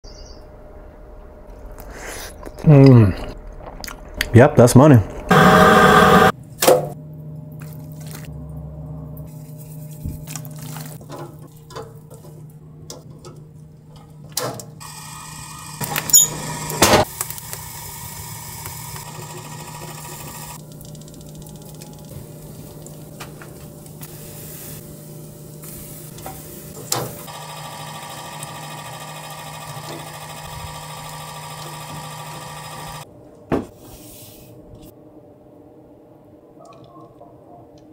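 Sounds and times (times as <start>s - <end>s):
rotisserie motor humming: 5.3s - 6.3s, 14.8s - 22.2s, 26.2s - 33.1s
food handling sounds: 9.3s - 12.4s.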